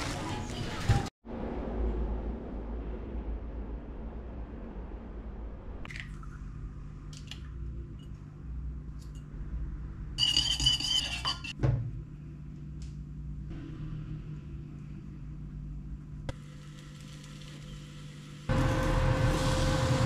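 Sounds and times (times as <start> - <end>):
fork clinking on ceramic plate: 10.2 - 11.5
thump: 11.6 - 11.9.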